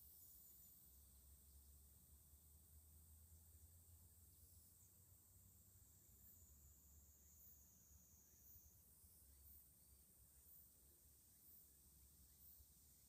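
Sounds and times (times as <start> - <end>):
faint low hum: 0.0 - 13.0
high-pitched hiss: 0.0 - 13.0.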